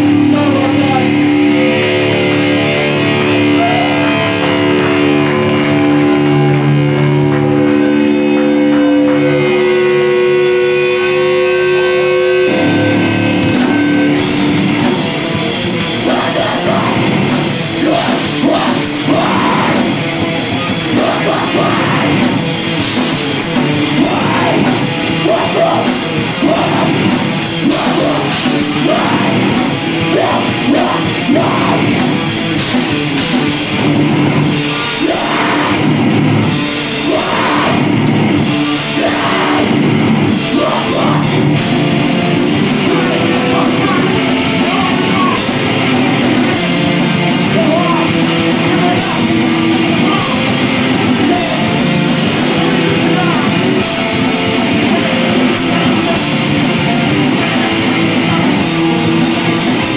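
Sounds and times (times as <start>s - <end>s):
drums: 0.0s - 59.9s
ringing guitar chords: 0.0s - 59.9s
rock band playing live: 0.0s - 59.9s.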